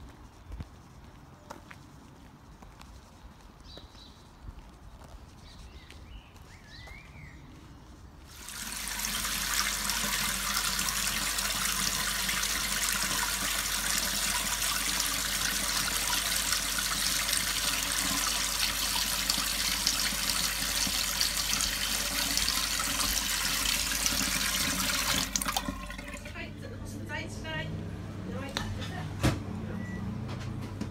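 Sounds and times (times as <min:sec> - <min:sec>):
tap water running into sink: 0:08.3 - 0:26.4.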